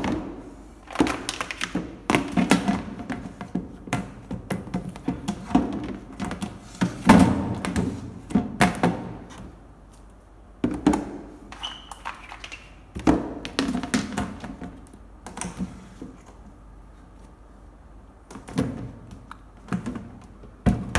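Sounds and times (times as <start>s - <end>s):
plastic boxes knocking: 0.0s - 9.3s, 18.3s - 20.9s.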